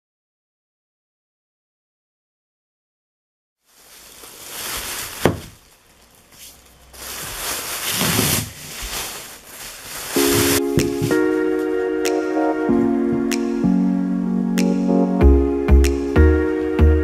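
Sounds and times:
plastic bag crinkling: 3.6 - 11.4
music: 10.2 - 17.0.

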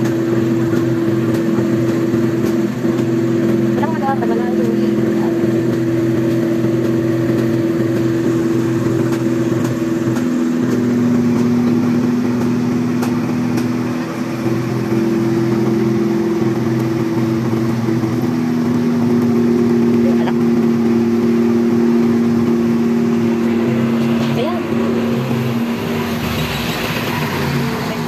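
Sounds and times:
fire truck engine running: 0.0 - 28.0.

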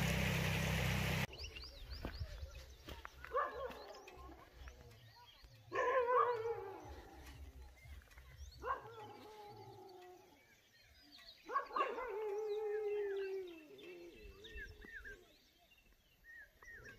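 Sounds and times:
small birds chirping: 1.0 - 16.9
dog howling: 11.7 - 14.5.

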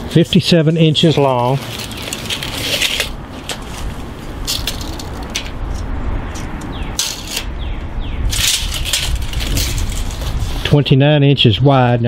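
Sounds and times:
tape measure rustles and scrapes: 1.0 - 5.8, 6.4 - 7.5, 8.3 - 10.8
low rumble: 1.6 - 10.7.

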